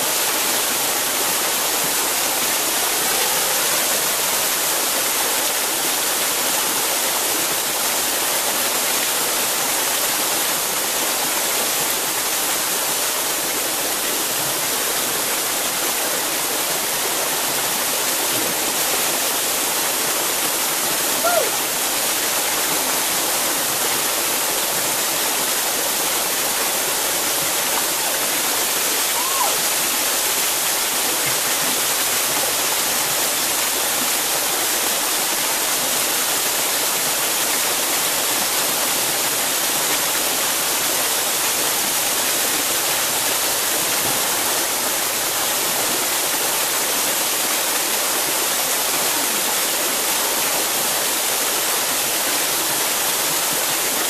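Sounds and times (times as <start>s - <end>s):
waterfall pouring into pool: 0.0s - 54.0s.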